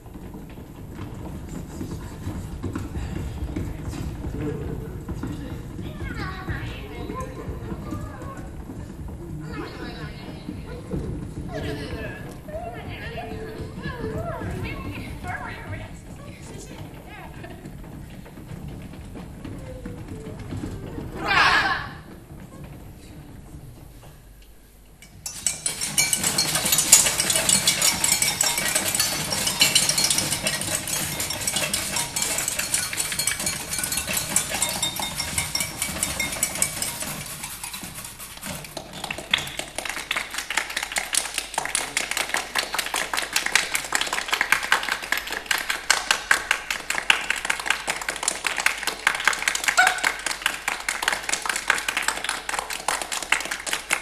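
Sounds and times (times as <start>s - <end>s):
rapid even clicking: 24.4s - 54.0s
kitchen tools scraping and tapping: 24.9s - 42.0s, 48.3s - 54.0s.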